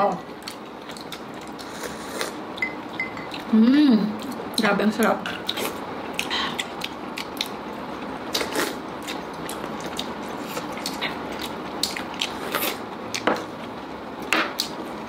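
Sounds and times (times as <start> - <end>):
people chewing and lip smacking: 0.4 - 3.5, 5.2 - 7.6, 8.3 - 13.3.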